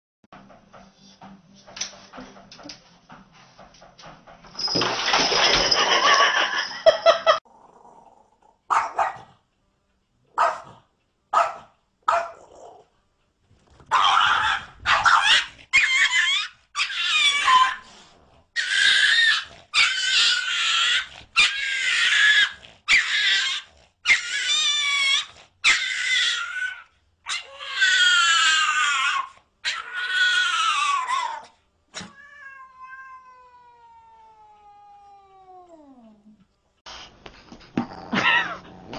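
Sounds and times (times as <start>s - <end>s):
dog yipping: 8.7s - 9.2s, 10.4s - 10.7s, 11.4s - 12.4s, 13.9s - 17.8s, 18.6s - 31.5s
dog whining howls: 14.0s - 17.8s, 18.6s - 31.5s.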